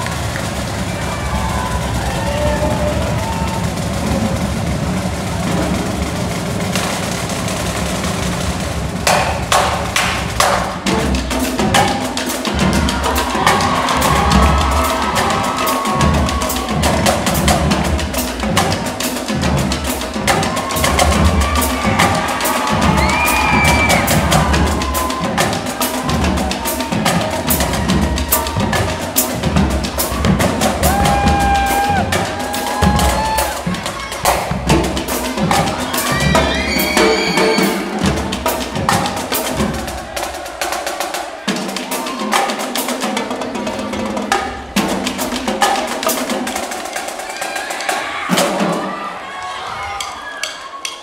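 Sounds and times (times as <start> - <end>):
rapid snare and tenor drums: 0.0 - 51.0
bass drums steady beat: 12.5 - 36.4.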